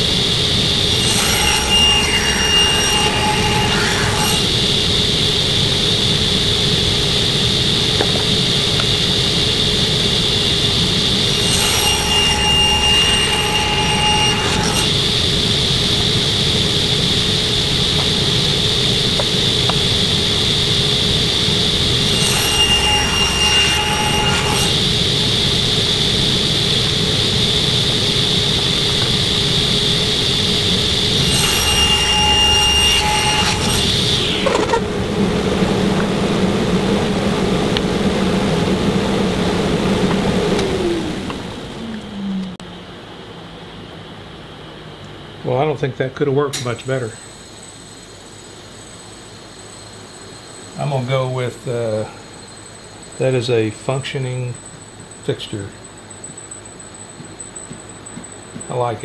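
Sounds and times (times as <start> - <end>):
table saw running: 0.0 - 42.6.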